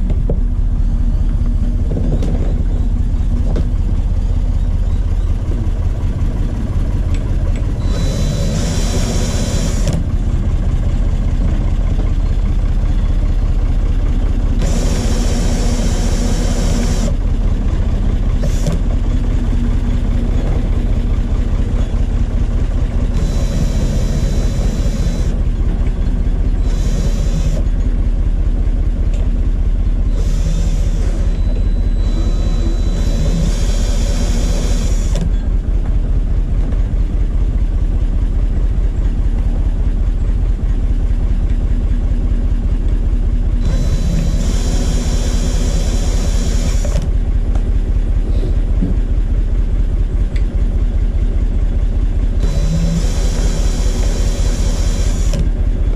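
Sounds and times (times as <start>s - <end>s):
engine idling: 0.0s - 55.9s
cordless drill spinning: 7.6s - 10.1s, 14.5s - 17.2s, 18.3s - 20.5s, 21.4s - 27.9s, 30.0s - 35.4s, 43.6s - 47.1s, 52.4s - 55.5s.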